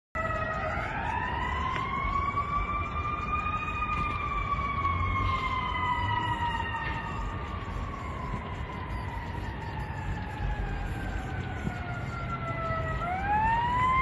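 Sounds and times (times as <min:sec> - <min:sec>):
emergency siren wailing: 0:00.2 - 0:14.0
steady low rumble: 0:00.2 - 0:14.0.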